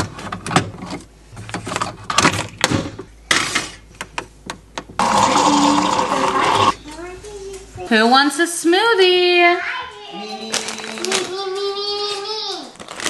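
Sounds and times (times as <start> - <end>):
knocks and clicks of objects: 4.0 - 5.0.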